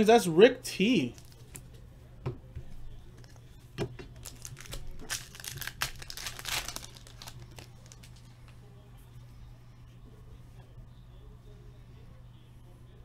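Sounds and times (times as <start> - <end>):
foil wrapper tearing and crinkling: 4.2 - 8.3.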